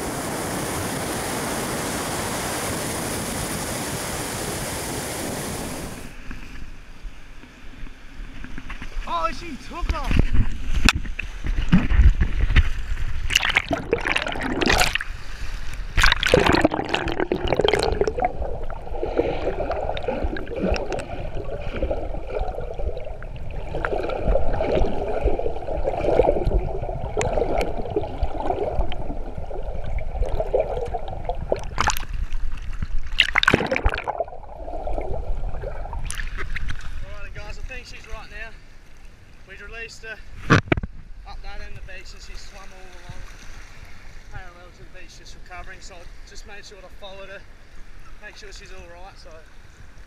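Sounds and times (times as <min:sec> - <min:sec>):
water splashing and sloshing: 0:10.0 - 0:39.2, 0:42.3 - 0:44.3
muffled underwater gurgle: 0:13.2 - 0:15.1, 0:16.0 - 0:36.7.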